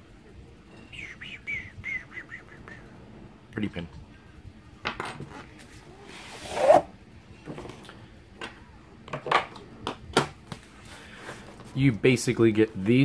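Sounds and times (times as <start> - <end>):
book sliding against cardboard: 6.0 - 6.9.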